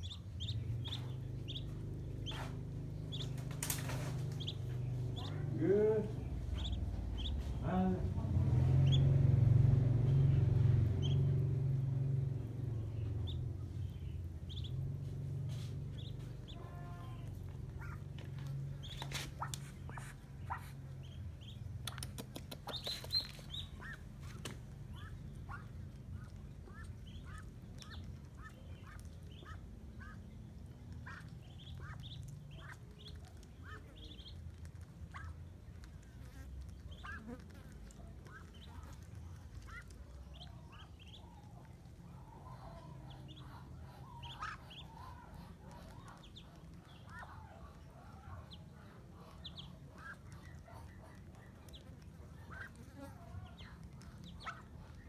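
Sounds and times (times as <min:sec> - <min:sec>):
ducklings peeping: 0:00.0 - 0:55.0
low hum: 0:00.0 - 0:55.0
sharp clicks: 0:21.7 - 0:23.3.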